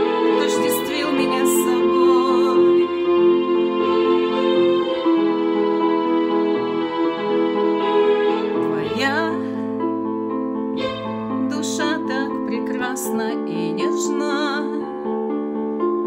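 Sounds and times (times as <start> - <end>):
sustained accompaniment chords: 0.0 - 14.0
woman singing: 0.3 - 3.0, 8.6 - 9.6, 11.5 - 15.2.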